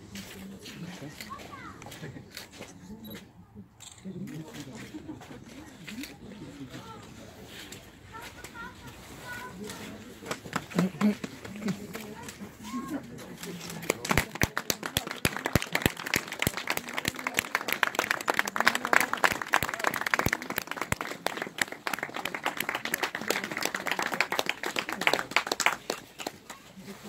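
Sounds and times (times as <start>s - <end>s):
crowd applauding: 13.8s - 26.6s.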